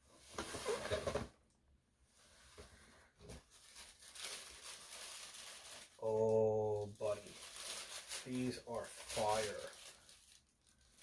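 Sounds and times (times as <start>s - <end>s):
tissue paper rustling: 3.2s - 11.0s.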